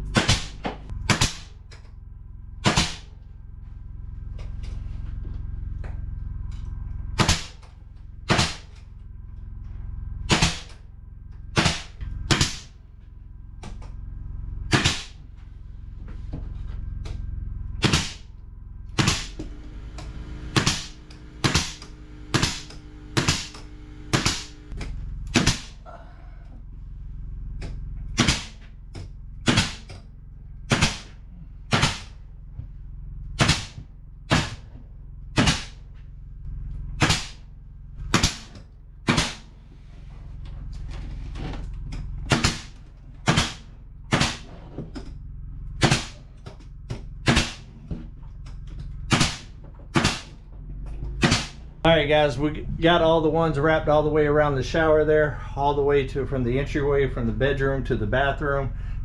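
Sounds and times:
steady low hum: 0:00.0 - 0:59.0
nail gun firing into wood: 0:00.1 - 0:01.5, 0:02.6 - 0:03.1, 0:07.2 - 0:07.6, 0:08.3 - 0:08.7, 0:10.3 - 0:10.8, 0:11.6 - 0:12.7, 0:14.7 - 0:15.2, 0:17.8 - 0:18.2, 0:19.0 - 0:19.4, 0:20.6 - 0:24.5, 0:25.3 - 0:25.8, 0:28.2 - 0:28.6, 0:29.4 - 0:30.0, 0:30.7 - 0:32.1, 0:33.4 - 0:34.6, 0:35.4 - 0:35.8, 0:37.0 - 0:37.4, 0:38.1 - 0:39.5, 0:42.3 - 0:44.5, 0:45.8 - 0:46.2, 0:47.2 - 0:47.7, 0:49.1 - 0:50.4, 0:51.2 - 0:51.6.

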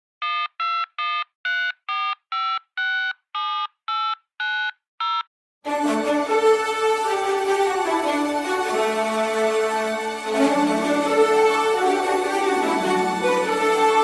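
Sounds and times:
telephone keypad tones: 0:00.2 - 0:05.3
music: 0:05.7 - 0:14.0.

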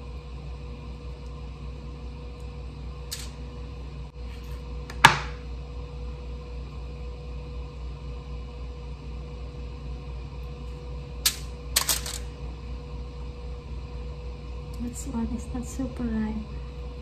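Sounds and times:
sous vide cooker humming: 0:00.0 - 0:17.0
knife knocking on cutting board: 0:05.0 - 0:05.4.

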